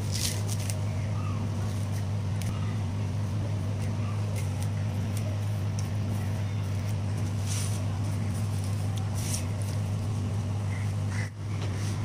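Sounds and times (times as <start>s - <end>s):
husk fibres tearing: 0.0s - 1.0s, 3.7s - 10.3s
low electrical hum: 0.0s - 12.0s.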